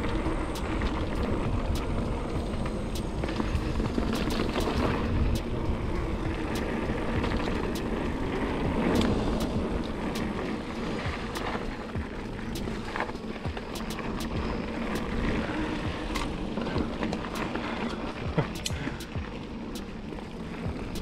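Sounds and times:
wind on microphone: 0:00.0 - 0:19.8
bike clicking and rattling: 0:00.0 - 0:21.0
tyres rumbling on dirt trail: 0:00.0 - 0:21.0.

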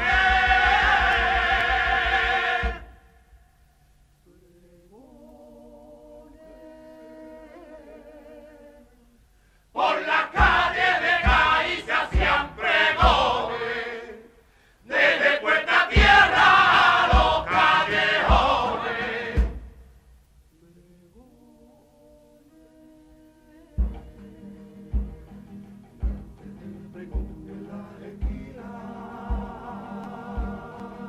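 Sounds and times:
male chorus singing in unison: 0:00.0 - 0:03.0, 0:09.7 - 0:19.7, 0:26.4 - 0:31.0
drum beating: 0:00.0 - 0:03.1, 0:10.2 - 0:13.7, 0:15.1 - 0:20.0, 0:26.0 - 0:26.4, 0:28.1 - 0:31.0.

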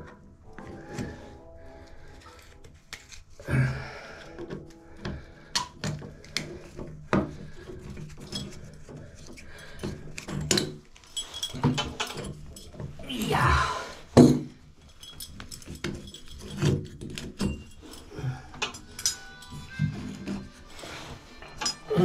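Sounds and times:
metal tools clinking and knocking: 0:06.7 - 0:13.2, 0:14.2 - 0:22.0.

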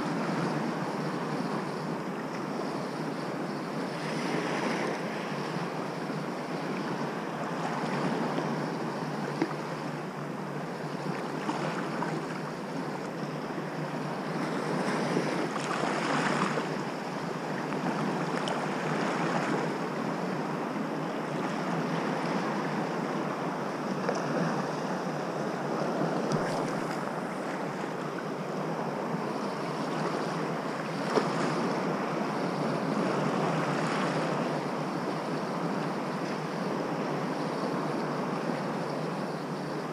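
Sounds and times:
waves washing over rocky shore: 0:14.4 - 0:19.8.

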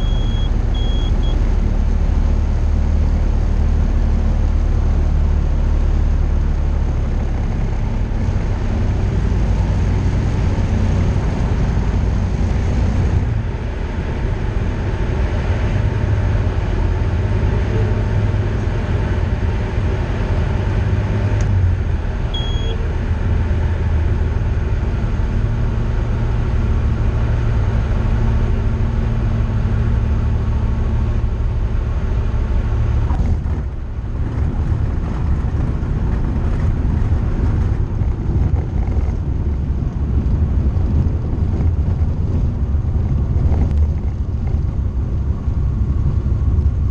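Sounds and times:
short high beep: 0:00.0 - 0:01.4, 0:22.4 - 0:22.9
aircraft engine and propeller droning: 0:00.0 - 0:46.9.

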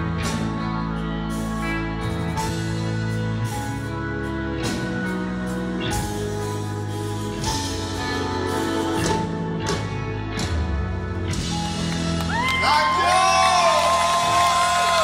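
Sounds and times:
crowd cheering with whoops: 0:12.0 - 0:15.0.

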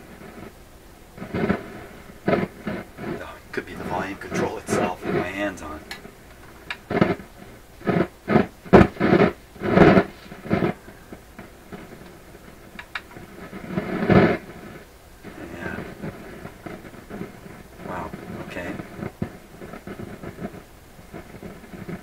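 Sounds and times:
radio loudspeaker noise crashes: 0:02.7 - 0:11.0, 0:17.9 - 0:19.3.

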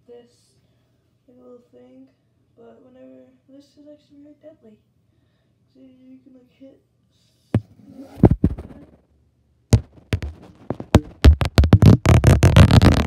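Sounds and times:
loud irregular knocks and thumps: 0:07.6 - 0:08.9, 0:09.7 - 0:13.0.

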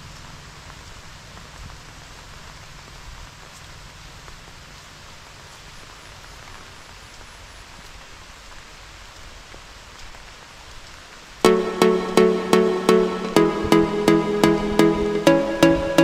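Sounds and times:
light rain on trees and grass: 0:00.0 - 0:13.0
electronic music with strong beat: 0:11.4 - 0:16.0.

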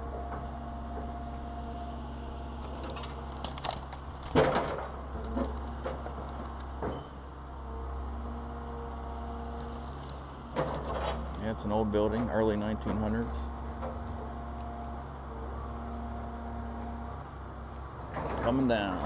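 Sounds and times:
excavator engine running: 0:00.0 - 0:19.0
building cracking and crunching: 0:02.9 - 0:06.8.

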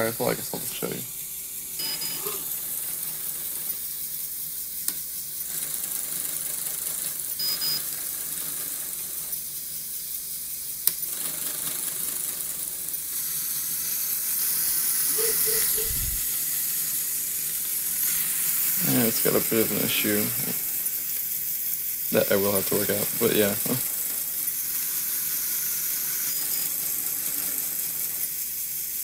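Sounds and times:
electric motors whirring: 0:00.0 - 0:29.0
short high beeps: 0:01.8 - 0:02.4, 0:07.4 - 0:07.8
plastic gears rattling: 0:08.0 - 0:29.0.

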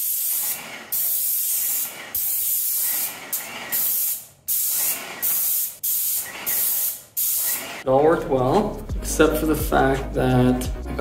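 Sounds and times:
paint spray gun hissing: 0:00.0 - 0:07.8.

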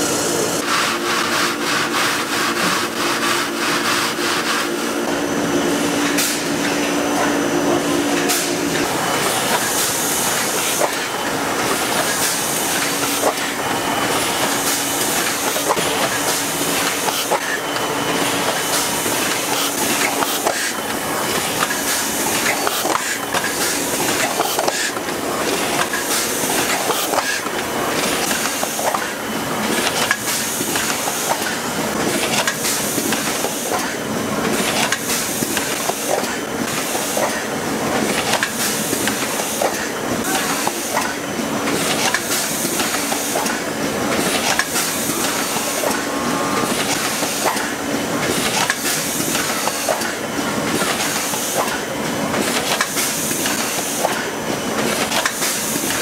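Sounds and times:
machine mechanical clatter: 0:46.7 - 0:56.0.

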